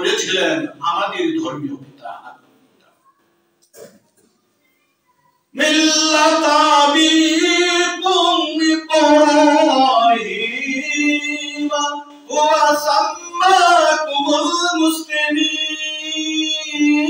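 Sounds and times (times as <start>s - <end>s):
man chanting: 5.5s - 17.0s.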